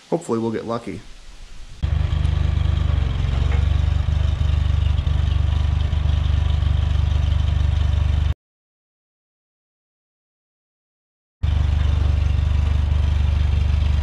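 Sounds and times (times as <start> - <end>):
tractor engine running: 1.4 - 8.4, 11.4 - 14.0.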